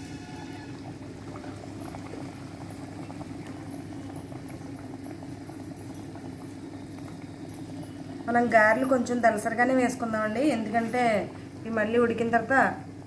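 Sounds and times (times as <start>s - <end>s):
fritter deep-frying in oil: 0.0s - 6.7s
low steady hum: 0.0s - 13.0s.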